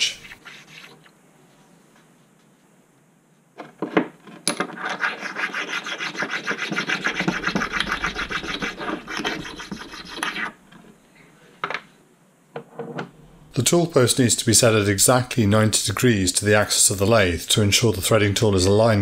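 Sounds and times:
stone rubbing on metal: 0:00.0 - 0:01.1, 0:04.7 - 0:10.9.

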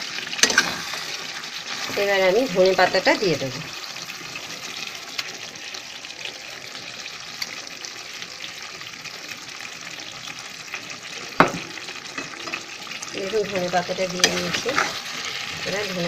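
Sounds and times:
curry sizzling in a pan: 0:00.0 - 0:16.0
spatula knocking pan: 0:11.4 - 0:12.3.

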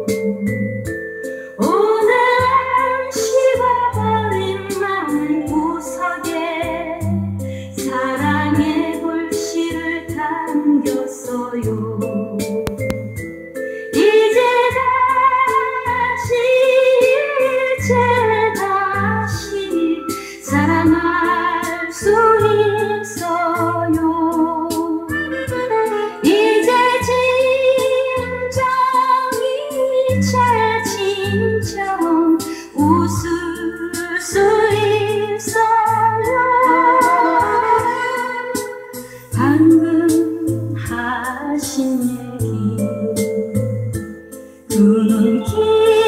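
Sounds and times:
woman singing: 0:01.6 - 0:12.9, 0:13.9 - 0:25.1, 0:26.1 - 0:43.8, 0:44.7 - 0:46.0
backing band with bass: 0:12.4 - 0:13.6.

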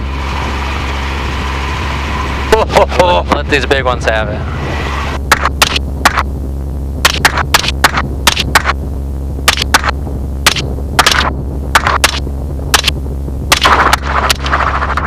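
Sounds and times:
helicopter drone: 0:00.0 - 0:15.0
rifle shots: 0:05.3 - 0:06.2, 0:07.0 - 0:08.8, 0:09.5 - 0:09.9, 0:10.5 - 0:15.0.

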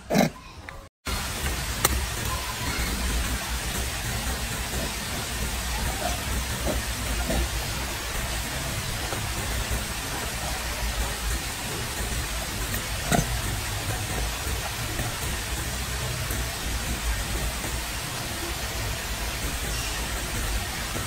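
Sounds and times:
outdoor hiss: 0:01.1 - 0:21.0.

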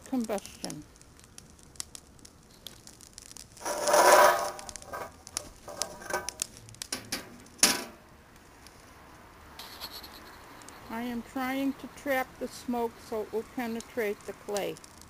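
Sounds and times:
dry leaves burning and crackling: 0:00.0 - 0:15.0
metal lid clanking: 0:03.6 - 0:05.1, 0:05.7 - 0:06.4, 0:07.0 - 0:08.0.

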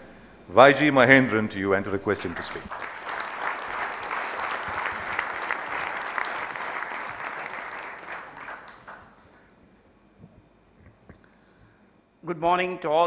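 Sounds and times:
audience applauding: 0:02.3 - 0:09.3.

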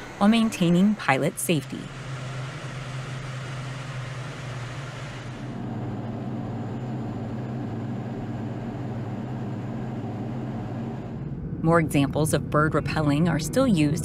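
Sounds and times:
jet aircraft droning: 0:00.0 - 0:14.0.

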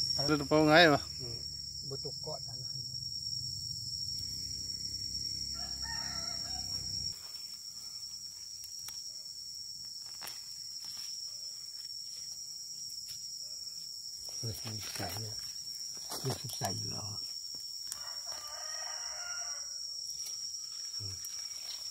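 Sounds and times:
crickets trilling: 0:00.0 - 0:21.9
rooster crowing: 0:04.7 - 0:07.2, 0:17.9 - 0:19.9.

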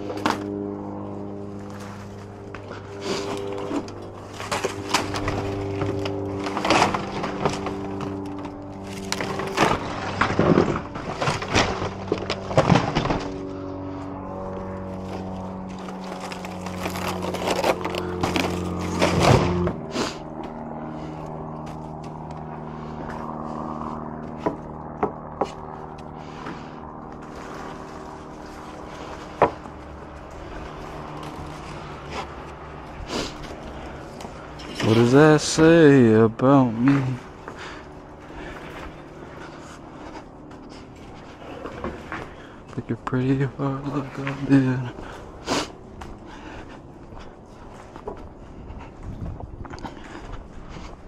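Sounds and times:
steady hum of held tones: 0:00.0 - 0:51.0
wooden boards clattering and cracking: 0:03.2 - 0:13.6, 0:15.8 - 0:19.8, 0:27.4 - 0:30.6.

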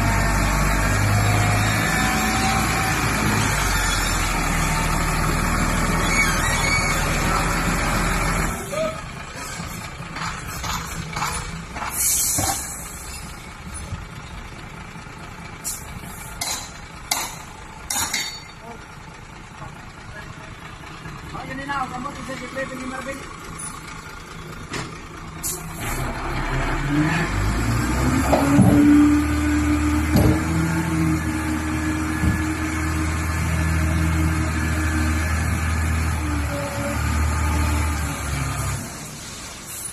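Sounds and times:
truck engine idling: 0:00.0 - 0:28.2
air brake hiss: 0:11.9 - 0:13.0, 0:15.6 - 0:15.9, 0:39.6 - 0:39.9.

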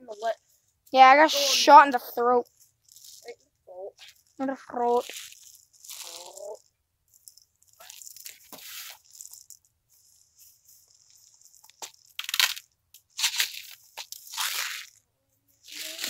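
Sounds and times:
dry leaves and sticks crunching: 0:05.0 - 0:06.6, 0:15.6 - 0:16.0.

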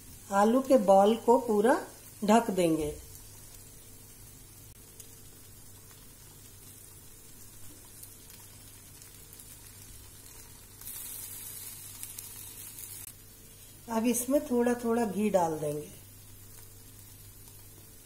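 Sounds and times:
batter sizzling in a pan: 0:00.0 - 0:18.0.

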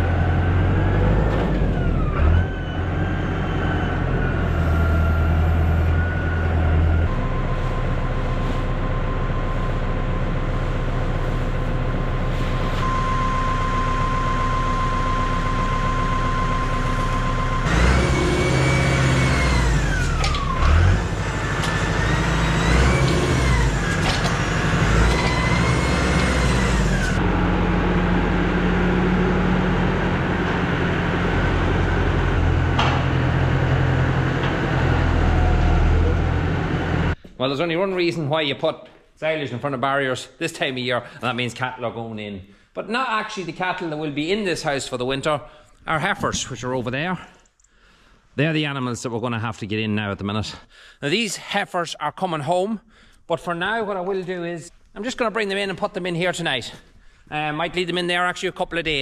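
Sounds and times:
hydraulic whine rising and falling: 0:00.0 - 0:37.2
tractor engine running: 0:00.0 - 0:37.2.

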